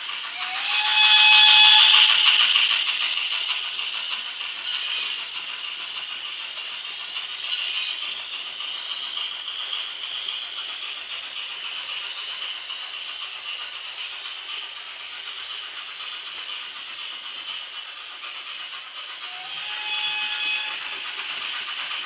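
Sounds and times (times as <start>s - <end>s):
model train steam hiss: 0.0s - 22.0s
wheels rattling on track: 0.0s - 22.0s
train whistle tone: 0.4s - 2.4s, 19.3s - 21.0s.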